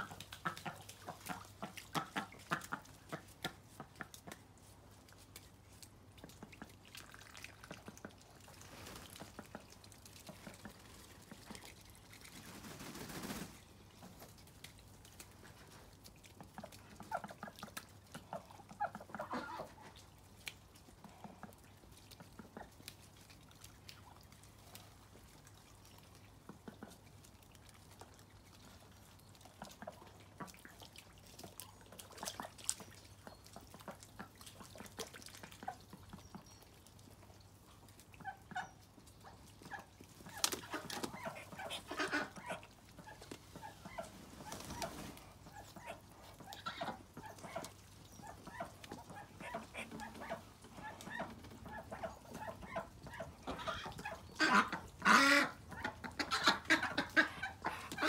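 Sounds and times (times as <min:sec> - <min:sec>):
water dripping and trickling: 0:00.0 - 0:58.0
ducks calling: 0:38.2 - 0:58.0.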